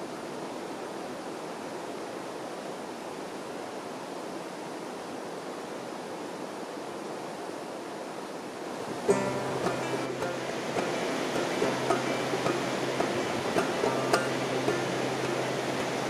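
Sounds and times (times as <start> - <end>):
stream rushing over rocks: 0.0 - 16.0
music: 9.0 - 16.0.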